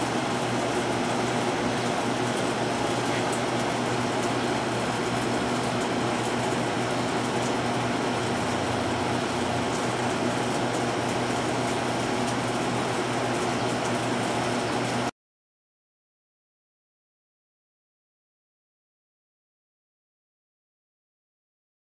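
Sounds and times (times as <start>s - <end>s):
mechanical hum: 0.0s - 15.1s.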